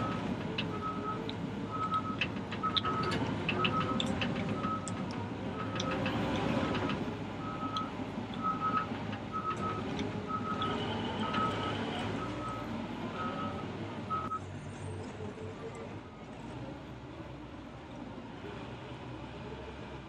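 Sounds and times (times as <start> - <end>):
backup alarm beeps: 0.0 - 4.9
diesel engine running: 0.0 - 14.4.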